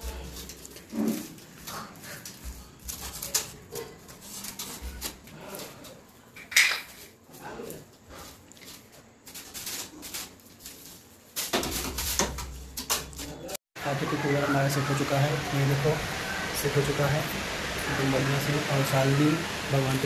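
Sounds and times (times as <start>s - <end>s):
hand broom sweeping floor: 0.0s - 13.2s.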